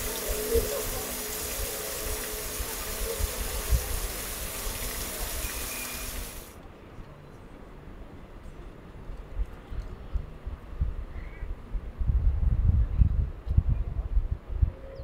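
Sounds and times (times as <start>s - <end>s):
fountain water splashing: 0.0s - 6.6s.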